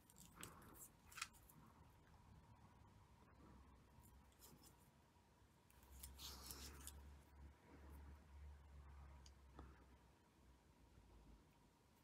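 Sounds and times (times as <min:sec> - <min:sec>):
faint rustle of thread: 0:00.0 - 0:02.2, 0:03.3 - 0:08.2.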